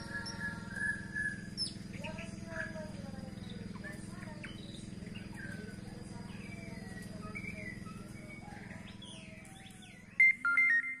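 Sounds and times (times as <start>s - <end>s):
bird chirping and whistling: 0.0s - 2.7s, 6.3s - 11.0s
steady low hum: 0.0s - 11.0s
loud ringing tones: 10.1s - 11.0s.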